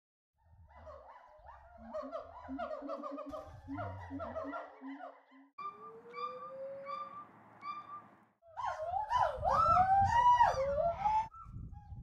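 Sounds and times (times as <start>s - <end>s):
gibbons hooting: 1.8s - 11.2s.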